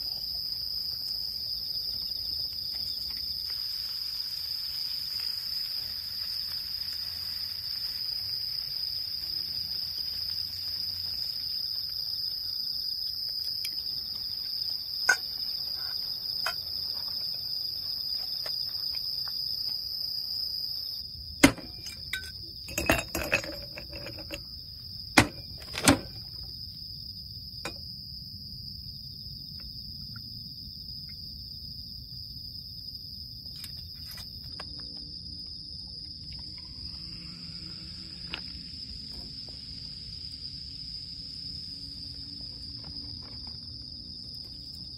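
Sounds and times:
crickets chirping: 0:00.0 - 0:44.9
sharp clicks and knocks: 0:25.2 - 0:26.3.

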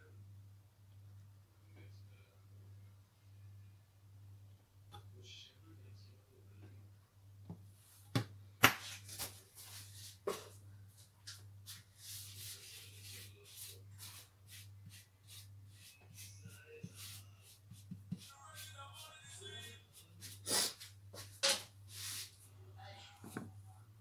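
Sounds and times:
hand rubbing oil on dough: 0:11.0 - 0:21.3, 0:21.9 - 0:22.4.

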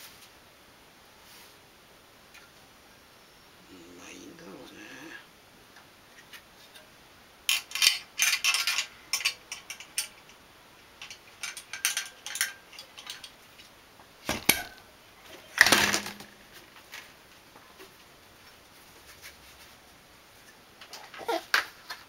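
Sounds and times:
metal and plastic parts clattering: 0:07.5 - 0:10.3, 0:11.0 - 0:13.4, 0:15.5 - 0:17.1.

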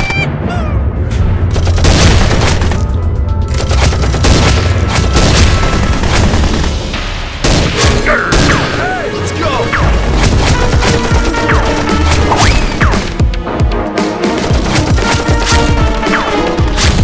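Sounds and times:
action music with heavy bass: 0:00.0 - 0:17.0
gunshot sound effects: 0:07.4 - 0:08.8, 0:14.7 - 0:17.0.

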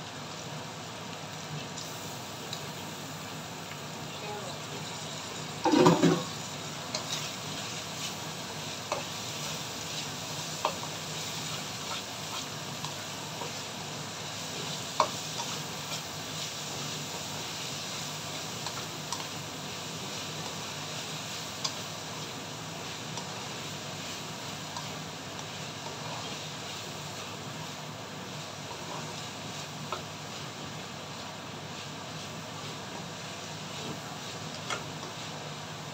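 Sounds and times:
food sizzling in a wok: 0:00.0 - 0:35.9
spatula scraping pan: 0:05.6 - 0:08.2.

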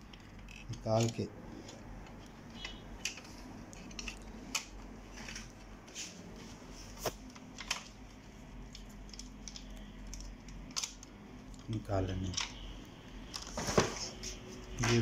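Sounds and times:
plastic scanner parts clicking: 0:00.0 - 0:05.5, 0:08.6 - 0:13.5.

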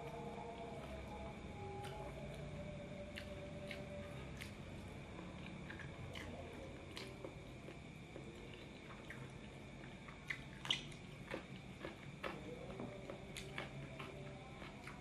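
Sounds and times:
steady low hum: 0:00.0 - 0:15.0
wet mouth smacks and chewing: 0:08.8 - 0:12.4.

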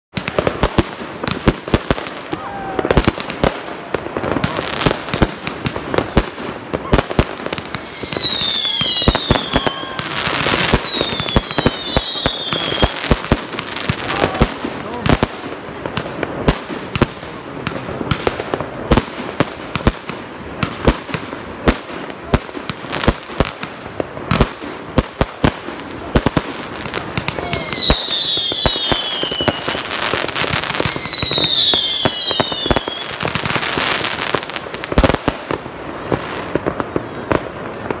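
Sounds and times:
fireworks bangs and crackles: 0:00.1 - 0:38.0
falling firework whistles: 0:07.4 - 0:13.1, 0:27.0 - 0:33.4.

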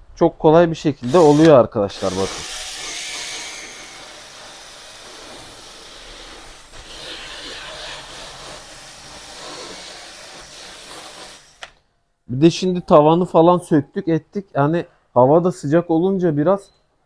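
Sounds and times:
drill spinning scrub brush: 0:01.0 - 0:11.7.

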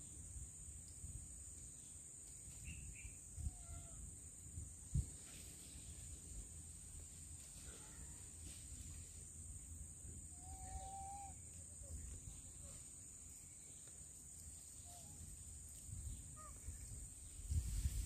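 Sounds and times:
faint chirps: 0:10.1 - 0:18.0
short whistled call: 0:10.4 - 0:11.4.

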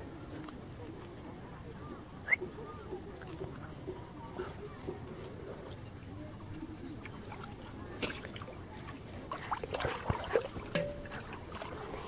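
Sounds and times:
water sloshing and splashing: 0:06.4 - 0:12.0.

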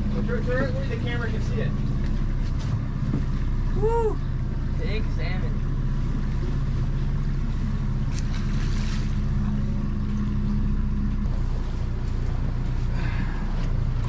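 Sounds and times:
outboard motor running: 0:00.0 - 0:14.0
water splash: 0:08.0 - 0:09.5.

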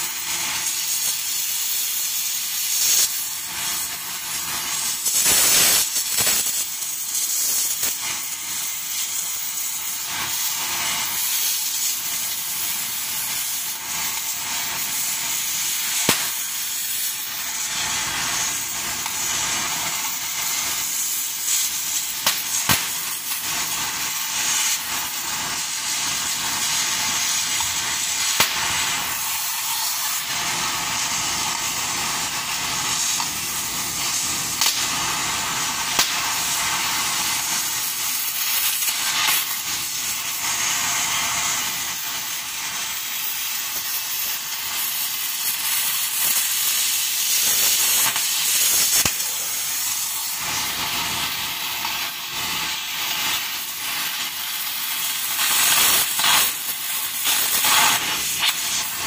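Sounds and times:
cutting torch hissing: 0:00.0 - 0:59.0
molten metal popping: 0:13.7 - 0:40.6.

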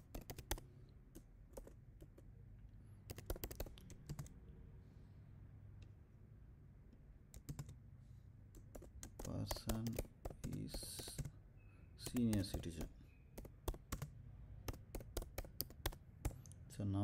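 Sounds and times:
computer keyboard typing: 0:00.0 - 0:02.3, 0:03.1 - 0:04.4, 0:07.3 - 0:07.8, 0:08.5 - 0:11.3, 0:12.0 - 0:16.6
faint low hum: 0:00.0 - 0:17.0.

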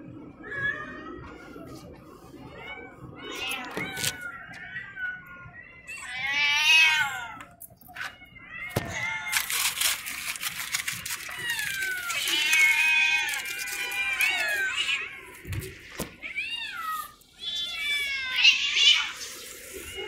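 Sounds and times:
cats meowing loudly: 0:02.4 - 0:20.0
aluminium foil crinkling: 0:03.5 - 0:04.2, 0:08.7 - 0:20.0.

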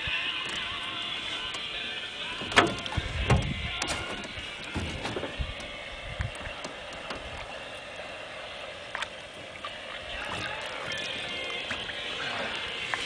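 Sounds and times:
faint music: 0:00.0 - 0:13.0
light water sounds: 0:00.0 - 0:13.0
knocks and bumps in a boat: 0:02.4 - 0:07.5.

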